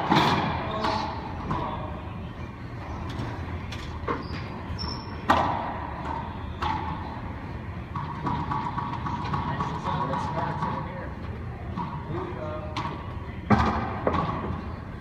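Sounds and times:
sneaker squeaks on hardwood: 4.0s - 5.3s.

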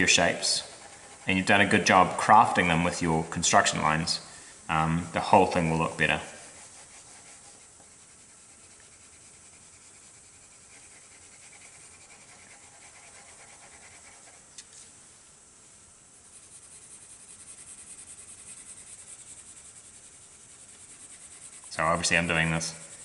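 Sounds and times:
pencil shading on paper: 0.0s - 2.6s, 5.2s - 14.4s, 16.2s - 23.0s.

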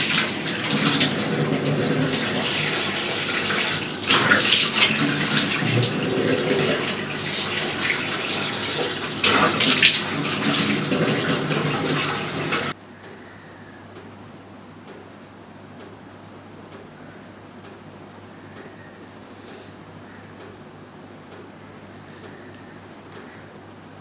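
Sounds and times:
tap running into sink: 0.0s - 12.7s
water splashing on face: 0.0s - 12.8s.

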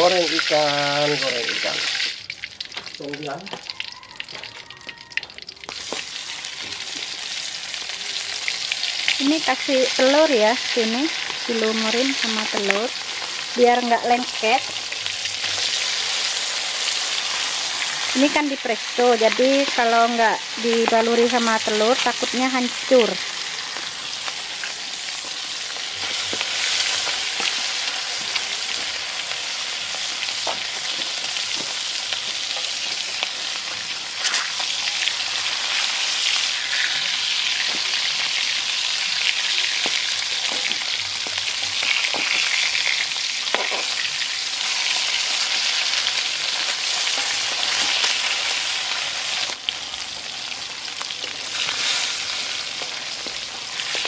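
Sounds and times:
fish sizzling in hot oil: 0.0s - 54.0s.

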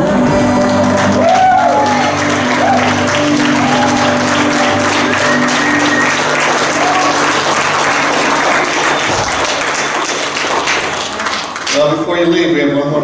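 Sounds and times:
congregation applauding: 0.4s - 12.1s
worship band held notes: 0.9s - 9.1s.

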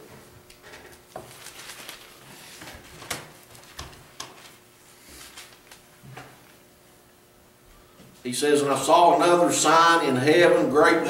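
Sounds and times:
faint steady hum: 0.0s - 11.0s
book pages turning and rustling: 1.0s - 6.3s.

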